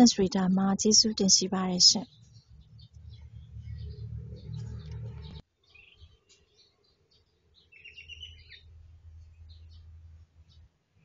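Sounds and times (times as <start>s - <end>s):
low hum: 0.0s - 5.4s
bird chirping: 0.0s - 10.7s.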